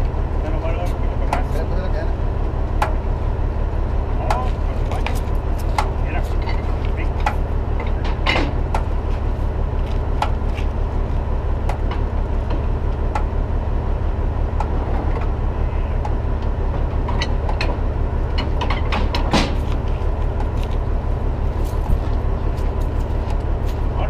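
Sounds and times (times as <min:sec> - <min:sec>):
diesel truck engine idling: 0:00.0 - 0:24.0
sharp clanks: 0:04.2 - 0:08.9.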